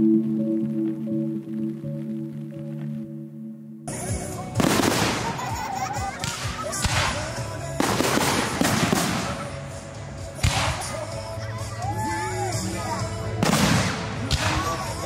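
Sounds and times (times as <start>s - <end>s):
fireworks crackling: 3.9s - 11.5s, 12.6s - 15.0s
fireworks bangs: 4.6s - 9.7s, 13.4s - 15.0s.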